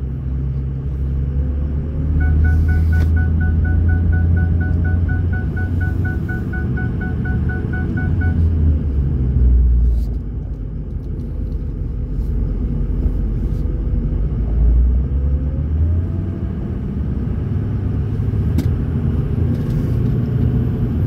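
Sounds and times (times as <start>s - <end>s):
diesel engine rumble: 0.0s - 21.0s
faint high turbo whistle: 2.2s - 8.5s.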